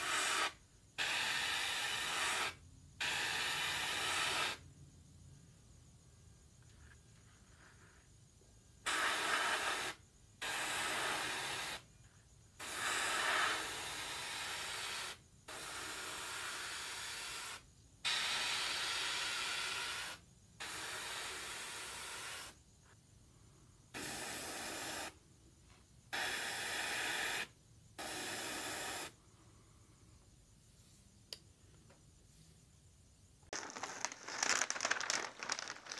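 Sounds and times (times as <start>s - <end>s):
airbrush spraying hiss: 0.0s - 4.6s, 8.8s - 11.9s, 12.6s - 22.6s, 24.0s - 25.2s, 26.1s - 29.2s.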